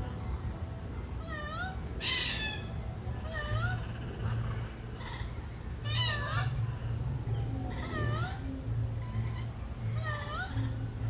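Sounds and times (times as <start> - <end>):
steady low hum: 0.0 - 11.0
cockatoo calling: 1.2 - 4.3, 5.0 - 6.6, 7.7 - 11.0.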